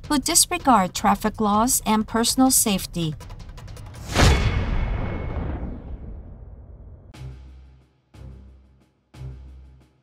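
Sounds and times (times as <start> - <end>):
deep cinematic boom: 4.1 - 7.2.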